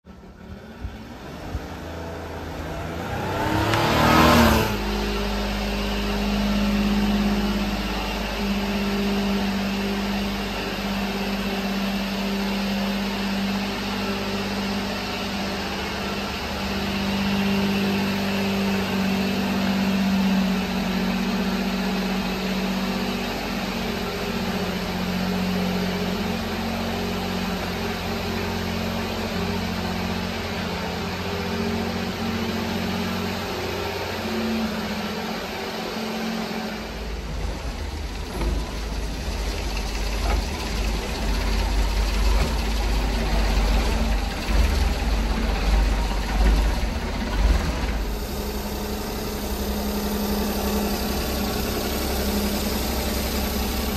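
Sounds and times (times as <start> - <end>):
small truck engine idling: 0.0 - 3.8, 4.7 - 53.9
loud rising rush: 1.1 - 8.9.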